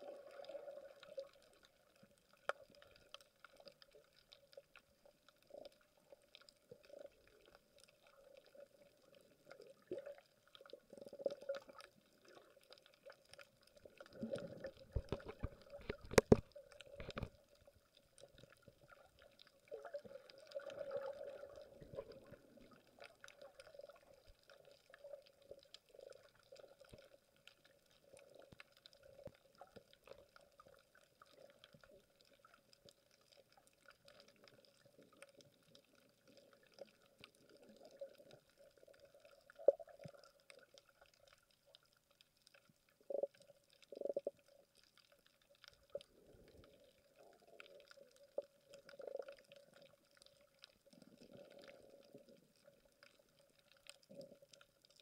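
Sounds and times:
water gurgling: 0.0 - 55.0
small clicks: 11.3 - 18.6.

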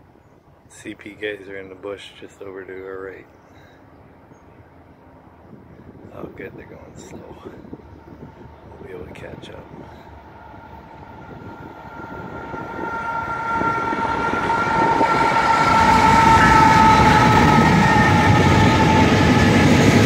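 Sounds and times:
train wheels rumbling: 5.1 - 20.0.

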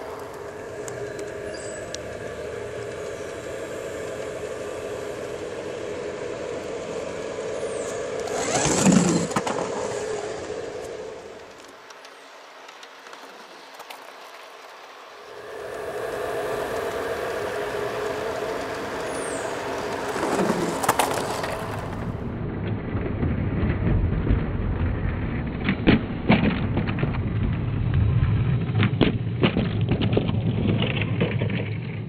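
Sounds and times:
model train wheels rumbling: 0.0 - 22.6
sharp clicks and cracks: 0.2 - 3.5, 7.9 - 14.9.

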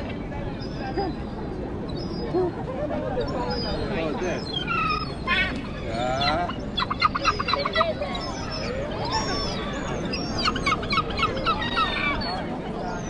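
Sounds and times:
gulls calling: 1.9 - 13.0.

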